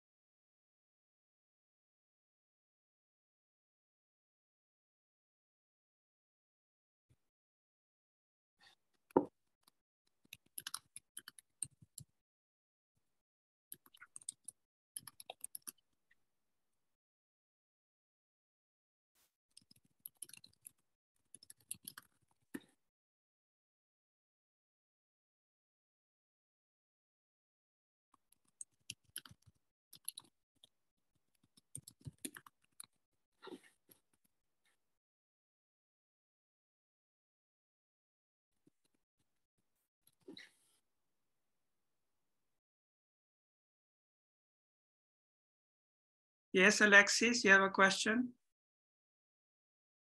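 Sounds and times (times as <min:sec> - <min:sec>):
keyboard typing: 0:21.3 - 0:22.1, 0:28.4 - 0:30.3.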